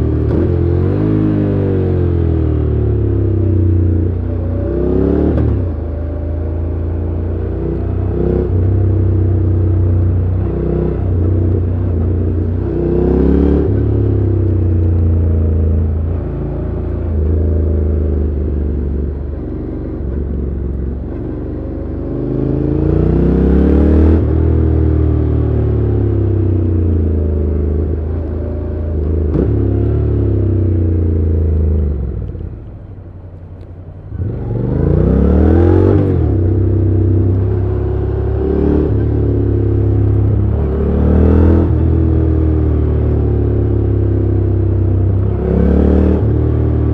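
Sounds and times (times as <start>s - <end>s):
motorcycle engine revving: 0.0s - 46.9s.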